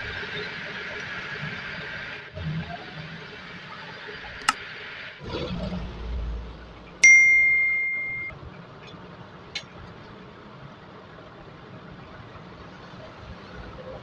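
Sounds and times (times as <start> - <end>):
sharp metallic ding: 7.0 - 8.3.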